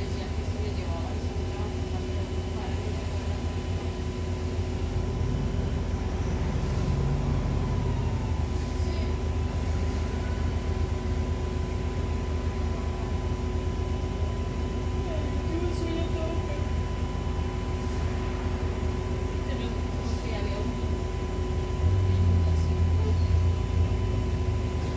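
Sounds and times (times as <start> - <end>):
bus engine idling: 0.0 - 24.9.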